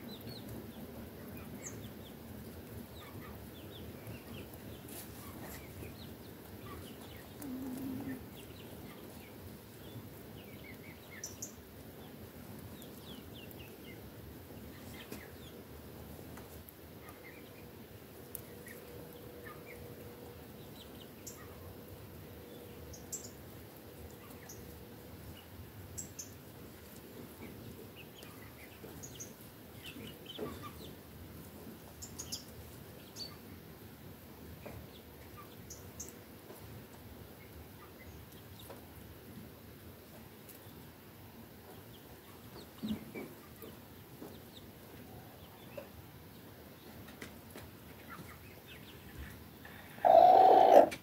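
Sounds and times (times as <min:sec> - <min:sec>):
steady outdoor hiss: 0:00.0 - 0:51.0
hens clucking: 0:02.8 - 0:09.4, 0:47.9 - 0:51.0
hen crooning: 0:07.3 - 0:08.4, 0:49.6 - 0:51.0
hen chirps: 0:49.6 - 0:51.0.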